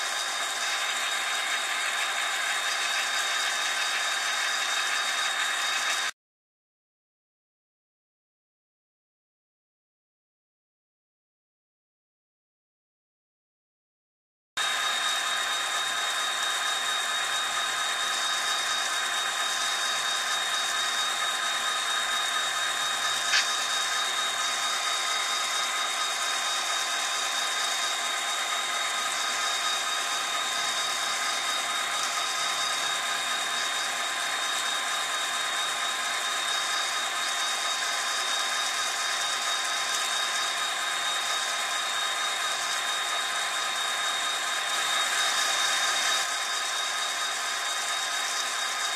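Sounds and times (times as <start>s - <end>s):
thin high whine: 14.6s - 48.9s
sharp click: 23.3s - 23.6s.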